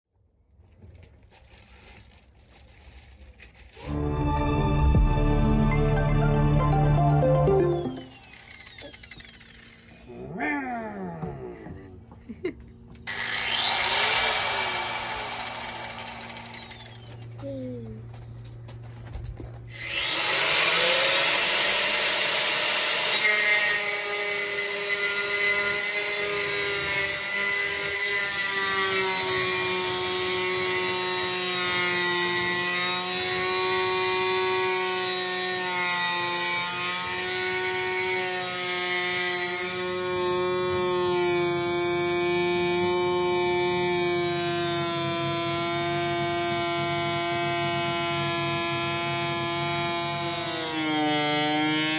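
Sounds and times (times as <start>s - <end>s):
angle grinder cutting sheet steel: 7.6s - 10.1s, 13.1s - 17.4s, 19.7s - 51.9s.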